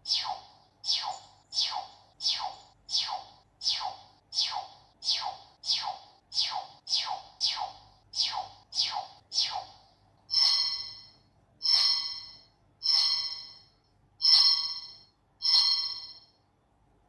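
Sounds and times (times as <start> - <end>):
short synthetic chimes: 10.3 - 16.3.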